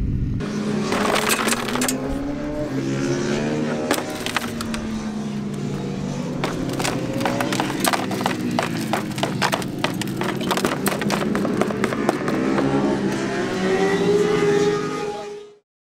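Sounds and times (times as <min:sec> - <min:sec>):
motorcycle engine running: 0:00.4 - 0:03.0, 0:03.8 - 0:13.9.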